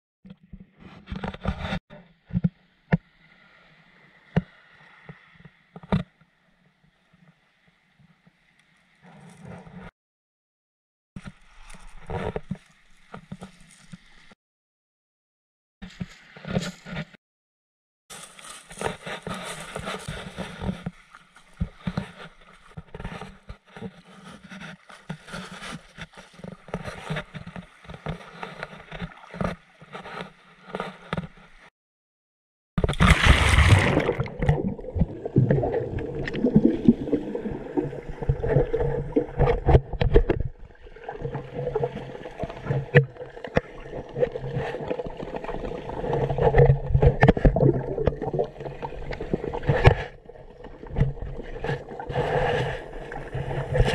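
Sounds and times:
splash of going under water: 0:32.8 - 0:39.3
muffled underwater rushing and gurgling: 0:32.9 - 0:53.9.

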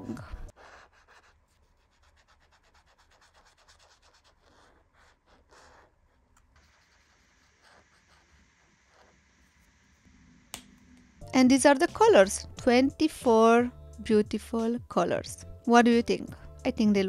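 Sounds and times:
paint marker scratching paper: 0:00.1 - 0:09.8.

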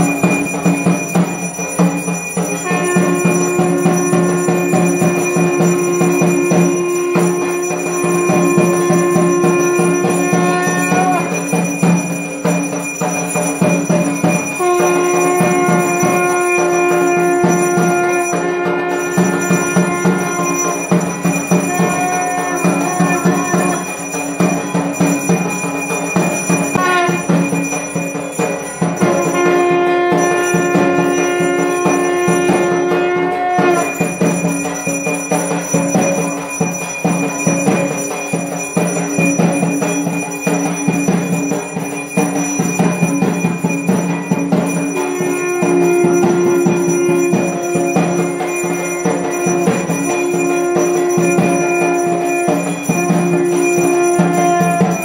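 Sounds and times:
bells ringing rapidly: 0:00.0 - 0:55.0
long held notes: 0:02.6 - 0:11.6, 0:14.5 - 0:24.2, 0:44.9 - 0:55.0.

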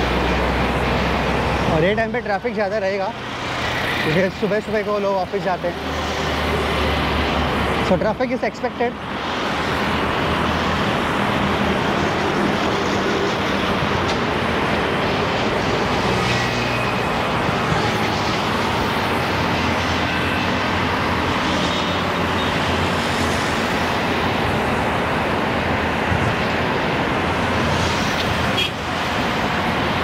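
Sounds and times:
heavy highway traffic: 0:00.0 - 0:30.0.

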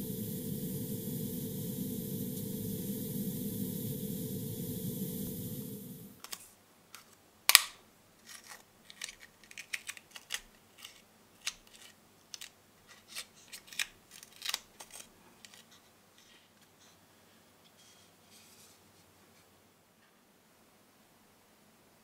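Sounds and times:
airbrush hiss: 0:00.0 - 0:06.2.

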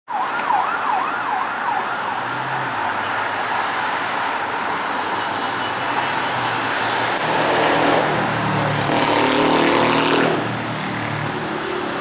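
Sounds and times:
emergency vehicle siren wailing: 0:00.1 - 0:03.6
street traffic: 0:00.1 - 0:12.0.

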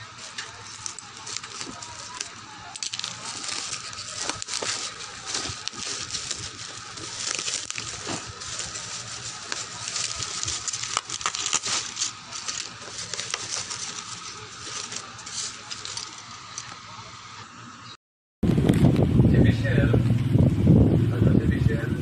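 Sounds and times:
plastic packaging crinkling: 0:00.0 - 0:17.1.

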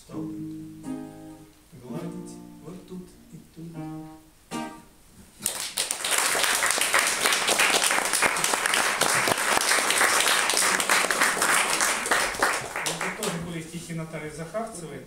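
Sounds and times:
audience applauding: 0:05.4 - 0:13.5.

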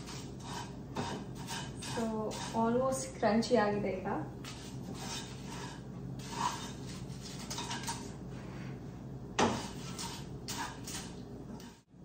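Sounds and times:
spatula scraping pan: 0:00.0 - 0:03.1, 0:04.4 - 0:08.2, 0:09.4 - 0:11.9.

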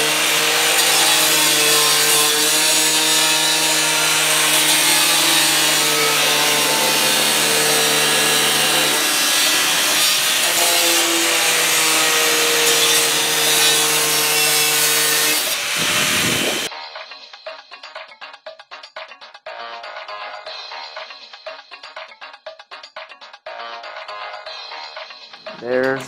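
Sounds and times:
angle grinder cutting sheet steel: 0:00.0 - 0:16.7.

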